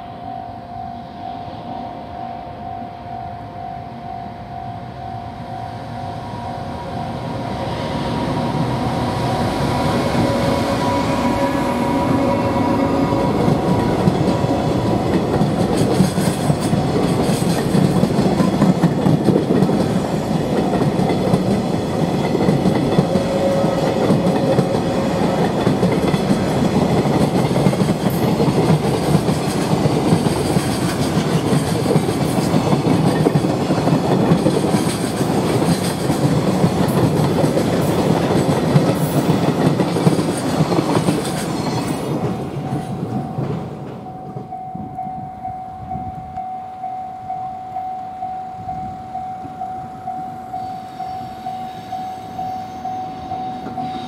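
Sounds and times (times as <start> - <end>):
electric locomotive passing: 0.0 - 54.0
level-crossing warning bell: 0.0 - 54.0
train wheels clickety-clack: 8.3 - 44.6.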